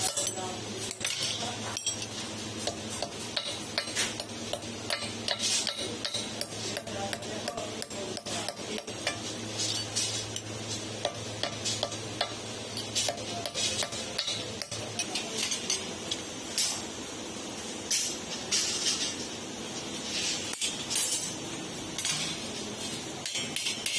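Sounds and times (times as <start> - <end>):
hammer striking chisel on metal: 0.0 - 9.9, 11.0 - 15.8.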